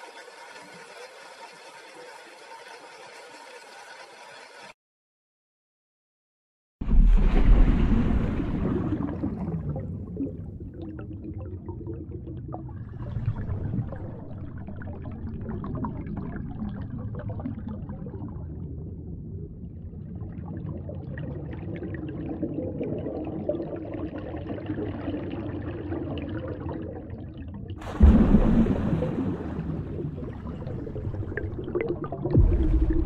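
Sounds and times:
sudden rush of water: 6.8 - 10.0, 27.8 - 33.0
underwater rushing and gurgling: 6.8 - 33.0.

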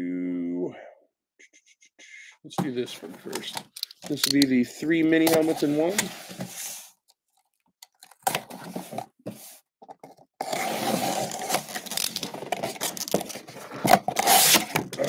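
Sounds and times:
box cutter scraping cardboard: 10.4 - 15.0.

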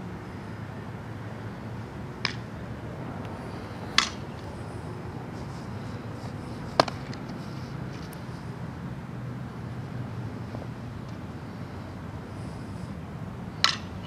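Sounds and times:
steady low hum: 0.0 - 14.0
bat hitting softball: 2.2 - 2.5, 3.9 - 4.2, 6.8 - 7.0, 13.6 - 14.0
ball smacking into glove: 6.8 - 7.2.

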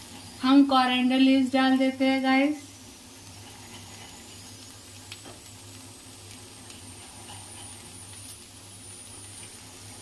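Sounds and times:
vegetables sizzling in a pan: 0.0 - 10.0
small crackles: 2.7 - 10.0.

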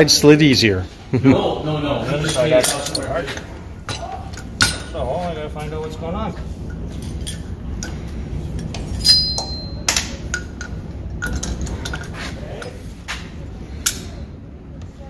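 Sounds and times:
steady low hum: 0.0 - 15.0
metal clinks and knocks: 2.6 - 5.0, 6.7 - 12.8.

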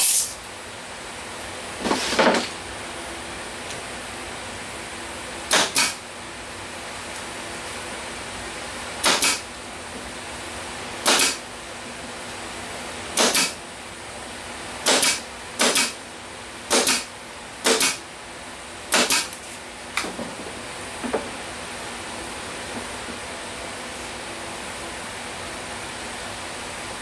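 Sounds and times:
air hissing: 0.0 - 0.4
pneumatic nailer firing: 0.0 - 0.4, 5.5 - 6.0, 9.0 - 9.5, 11.0 - 11.4, 13.1 - 13.6, 14.8 - 16.0, 16.7 - 18.0, 18.9 - 19.4.

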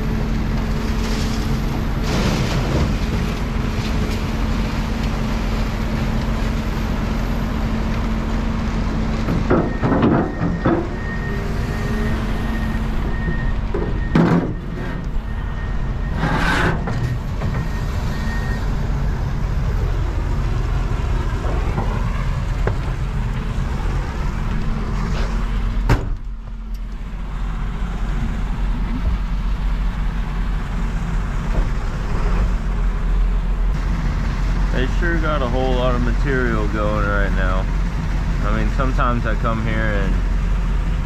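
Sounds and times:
diesel truck engine idling: 0.0 - 41.0
truck door shutting: 25.1 - 26.4.

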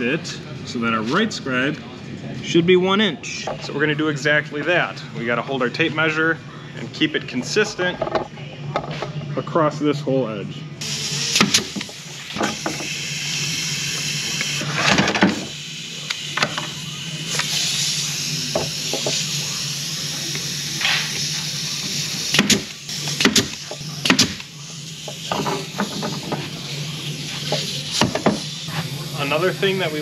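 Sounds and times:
workshop hum: 0.0 - 30.0
air hiss puffs: 10.8 - 30.0.

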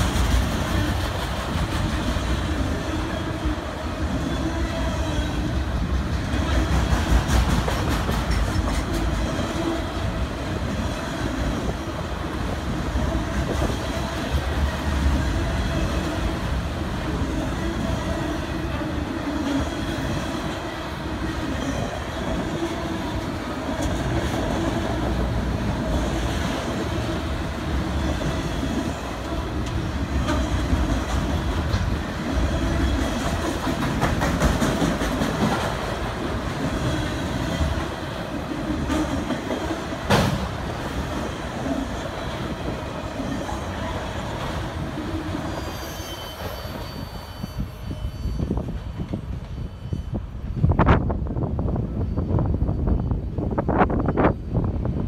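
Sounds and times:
train wheels rumbling on rail: 0.0 - 55.0
train wheel clicks: 6.0 - 9.3, 32.7 - 36.0.

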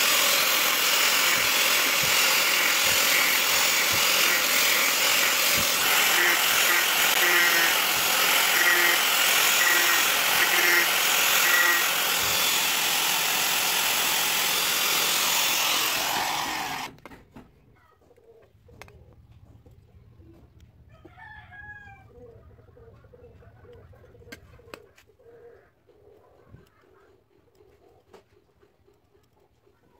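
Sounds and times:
angle grinder sanding wood: 0.0 - 17.0.

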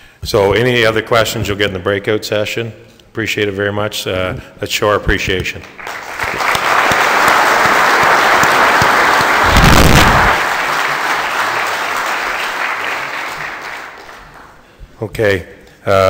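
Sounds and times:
audience applauding: 5.7 - 14.6.

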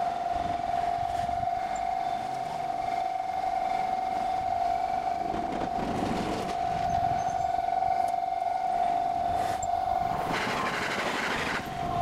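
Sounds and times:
electric train passing: 0.0 - 12.0
level-crossing alarm tone: 0.0 - 12.0.

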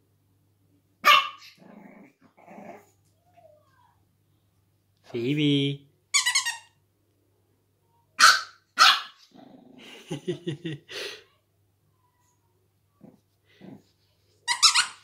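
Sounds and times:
puppy barking: 1.0 - 1.6, 8.2 - 9.3, 14.5 - 15.0
puppy growling: 1.4 - 3.1, 9.2 - 10.2, 13.0 - 14.0.

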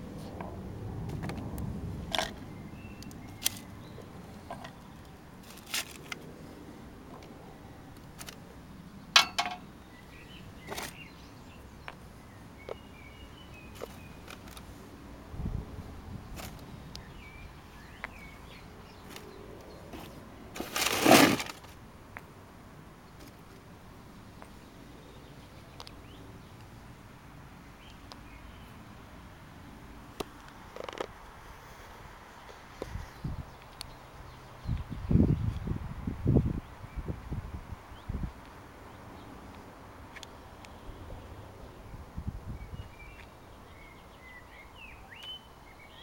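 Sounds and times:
puck scraping on stone: 20.0 - 21.7.

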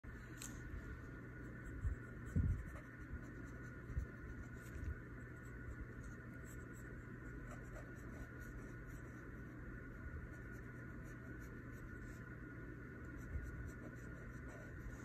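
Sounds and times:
pencil scratching on paper: 1.5 - 9.6, 10.2 - 12.3, 13.1 - 15.0.

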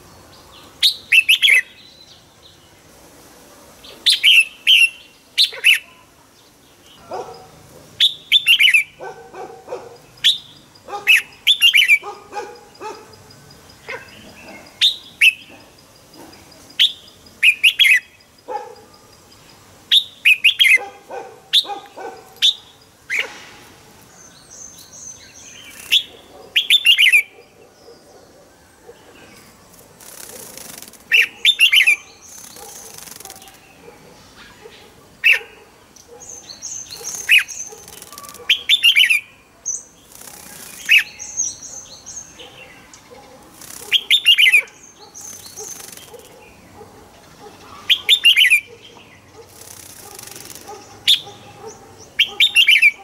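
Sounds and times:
bulbul singing: 6.8 - 20.9, 30.0 - 33.8, 36.2 - 46.6, 47.8 - 53.0
wings fluttering: 29.7 - 31.3, 32.3 - 33.6, 37.0 - 38.5, 40.1 - 41.1, 43.5 - 44.2, 45.2 - 46.4, 49.4 - 50.9.

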